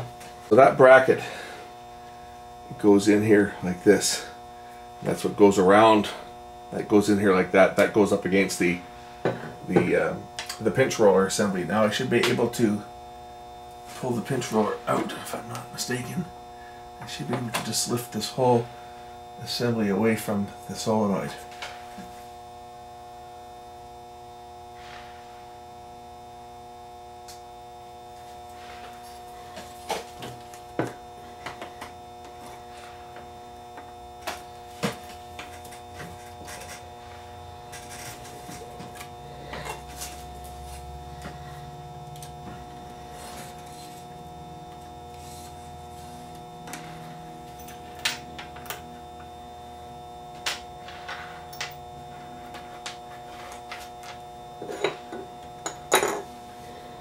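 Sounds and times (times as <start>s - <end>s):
steady electrical hum: 0.0s - 57.0s.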